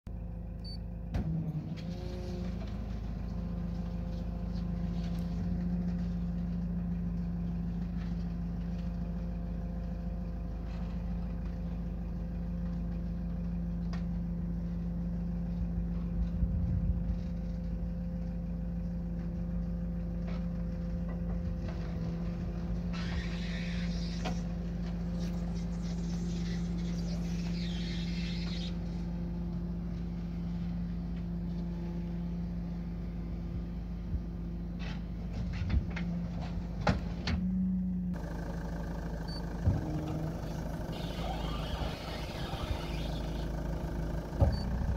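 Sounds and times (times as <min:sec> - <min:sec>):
truck engine running: 0:00.1 - 0:44.9
hydraulic pump whine: 0:21.4 - 0:29.5, 0:38.2 - 0:44.9.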